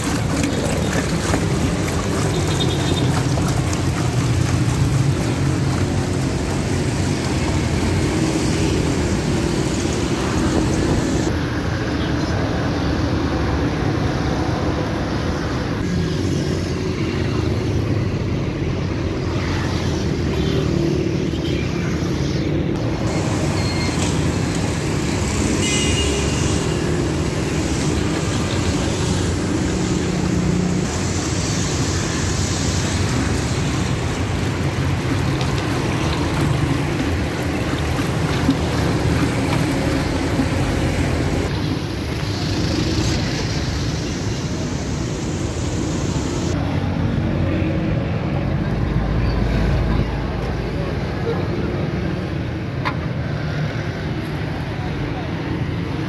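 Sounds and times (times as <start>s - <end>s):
street traffic rumble: 0.0s - 56.0s.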